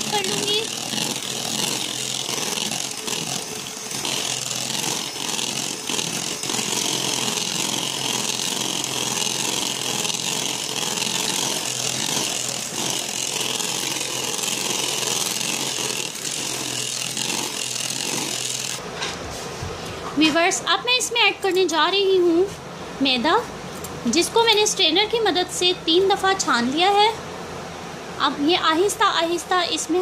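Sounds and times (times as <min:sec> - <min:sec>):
electric hand mixer whisking: 0:00.0 - 0:18.8.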